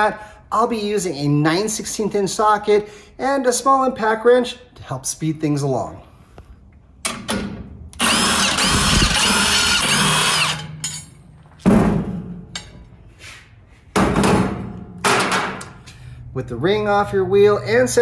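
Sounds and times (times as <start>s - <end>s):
cordless impact wrench: 7.9s - 10.8s.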